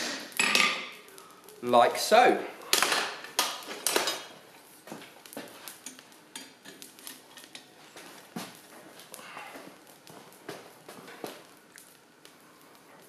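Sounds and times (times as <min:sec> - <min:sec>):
tongs clinking on steel: 0:05.8 - 0:07.7.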